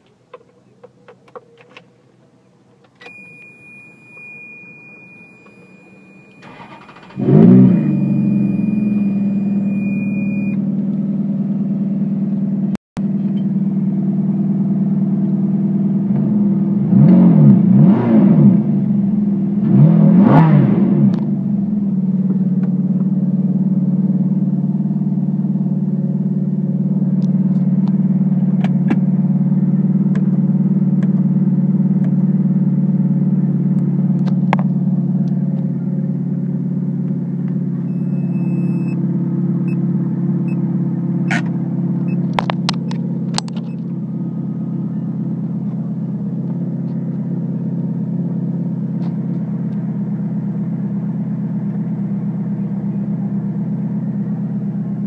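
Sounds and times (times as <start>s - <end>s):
car engine starting and idling: 0.1s - 55.0s
engine throttle blips: 2.9s - 55.0s
high electronic tone: 3.1s - 10.6s.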